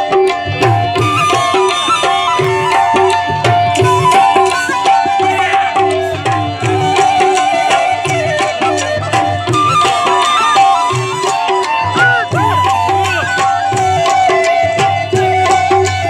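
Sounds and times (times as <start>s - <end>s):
hand drums playing quick rhythm: 0.0s - 16.0s
sustained melody line: 0.0s - 16.0s.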